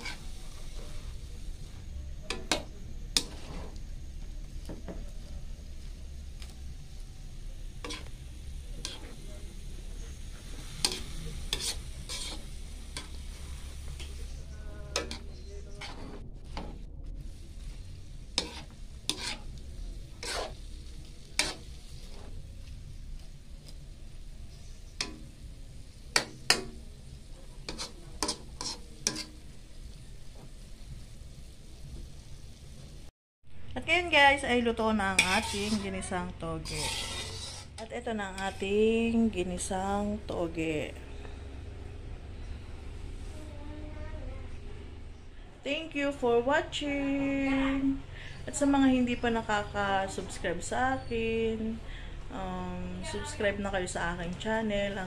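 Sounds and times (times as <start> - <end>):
metal spatula scraping a wok: 0.0 - 4.3, 5.2 - 30.7, 34.9 - 39.7
faint sizzle: 0.0 - 55.0
spatula clacks: 18.4 - 19.5, 26.1 - 26.8, 27.6 - 29.4.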